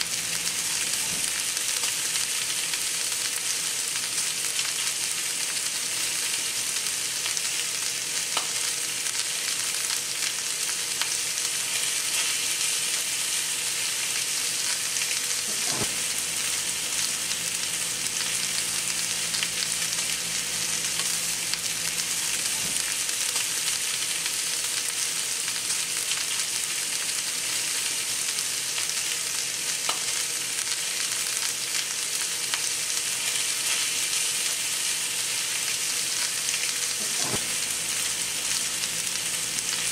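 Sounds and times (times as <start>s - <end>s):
steaks sizzling in skillet: 0.0s - 39.9s.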